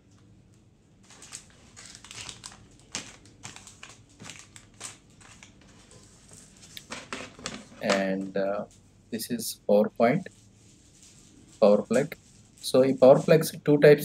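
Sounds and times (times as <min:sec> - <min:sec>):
cardboard packaging rustling: 0:01.0 - 0:08.3.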